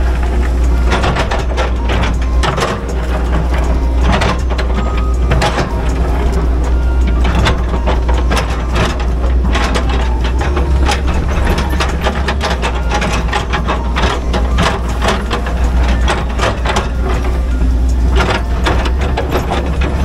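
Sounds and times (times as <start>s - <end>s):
bucket clicks and rattles: 0.0s - 20.0s
excavator diesel engine running: 0.0s - 20.0s.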